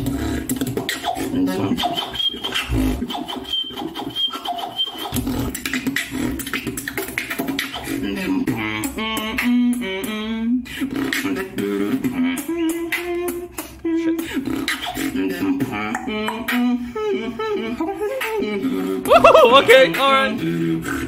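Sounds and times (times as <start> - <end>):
beatboxing: 0.0 - 21.0
high whistled tone: 1.8 - 5.2
vocal bass line: 2.6 - 3.2, 5.2 - 6.6, 8.0 - 21.0.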